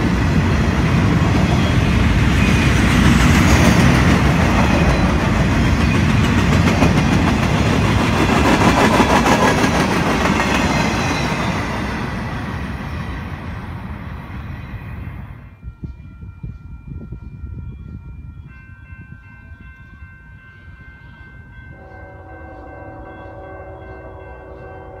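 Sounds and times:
freight train wheels clickety-clack: 0.0s - 15.0s.

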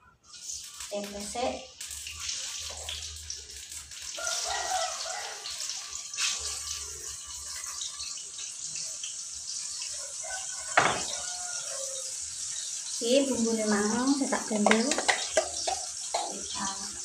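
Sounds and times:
hot oil sizzling in a pan: 0.2s - 17.0s.

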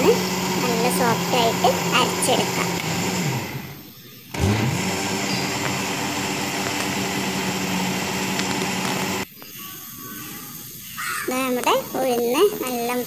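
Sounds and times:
mixer grinder motor whining: 0.0s - 9.3s.

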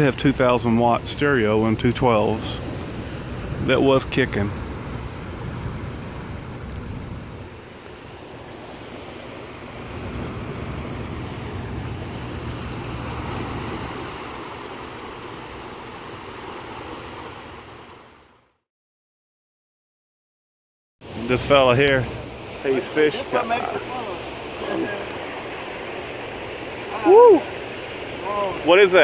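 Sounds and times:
river water churning and rushing: 0.0s - 18.5s, 21.0s - 29.0s
wind rumbling on microphone: 2.3s - 18.2s.

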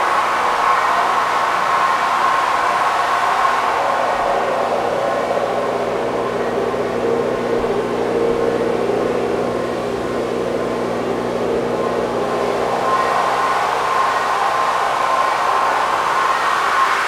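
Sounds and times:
faint steady tones: 0.0s - 17.0s
radio static hiss with echo: 0.0s - 17.0s.

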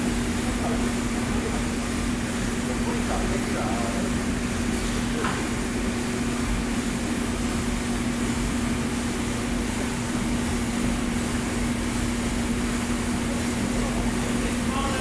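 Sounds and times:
coffee roaster machine hum: 0.0s - 15.0s.

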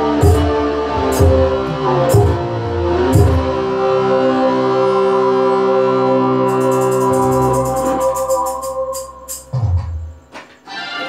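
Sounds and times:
bass: 0.0s - 10.3s
sustained organ-like keyboard chord: 0.0s - 11.0s
fast high percussion strokes: 6.5s - 9.6s.

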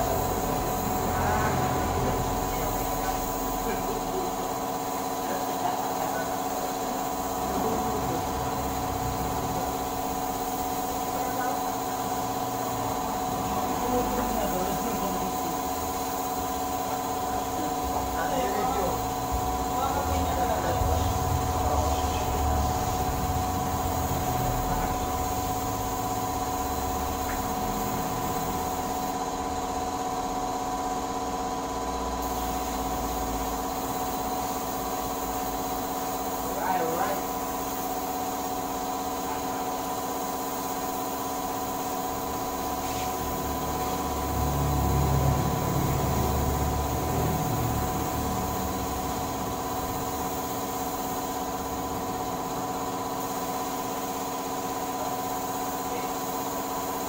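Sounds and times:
motor drone: 0.0s - 30.0s, 42.3s - 50.8s
machine hum: 0.0s - 37.7s, 41.5s - 55.0s
paint spray gun hissing: 0.0s - 57.0s.

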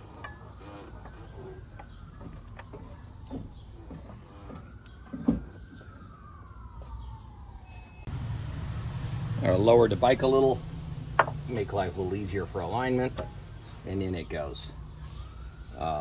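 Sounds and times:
faint emergency siren wailing: 0.0s - 16.0s
light knocks on wheel hub: 11.2s - 11.4s.

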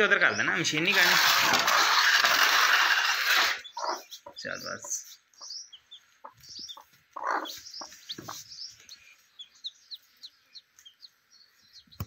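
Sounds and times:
hen clucking: 3.4s - 11.2s
chicks peeping: 3.6s - 12.0s.

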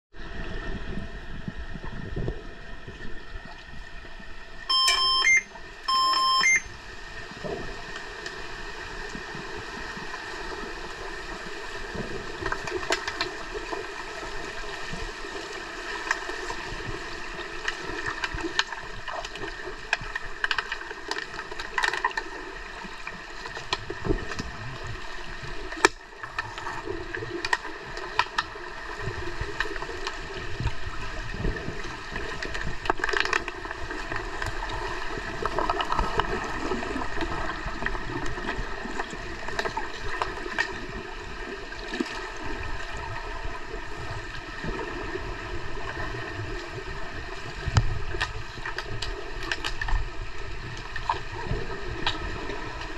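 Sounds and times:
underwater hiss and hum: 0.2s - 5.9s, 6.6s - 52.9s
sharp underwater clicks and knocks: 32.5s - 34.6s.

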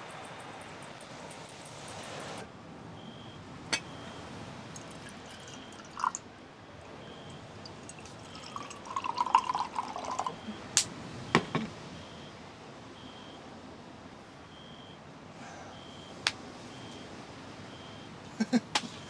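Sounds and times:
liquid pouring and dripping: 4.7s - 6.2s, 6.8s - 10.4s.

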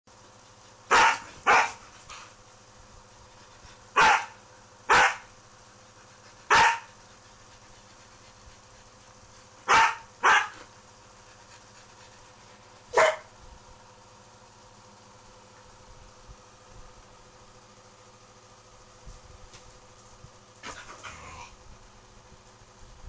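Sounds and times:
dogs barking: 0.9s - 1.8s, 4.0s - 5.3s, 6.5s - 6.9s, 9.6s - 10.7s, 12.9s - 13.3s.

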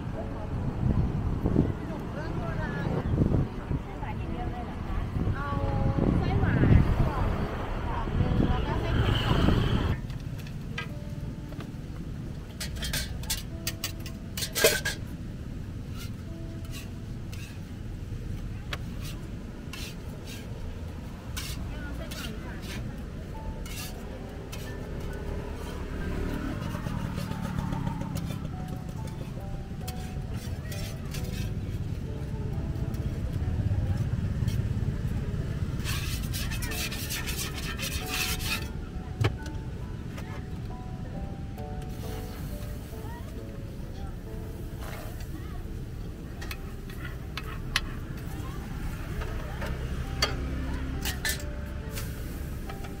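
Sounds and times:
faint music: 0.0s - 53.0s
traffic rumble: 0.0s - 53.0s
wind: 0.0s - 53.0s
metal utensils scraping a griddle: 12.5s - 15.2s, 15.9s - 17.7s, 18.8s - 20.6s, 21.3s - 28.5s, 29.9s - 31.7s, 35.6s - 38.8s, 46.4s - 53.0s.

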